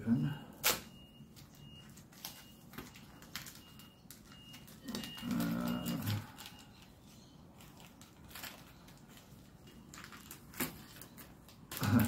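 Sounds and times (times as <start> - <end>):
sharp crackle of packaging: 0.5 - 12.0
packaging crinkling and scraping: 0.6 - 12.0
man humming: 11.8 - 12.0.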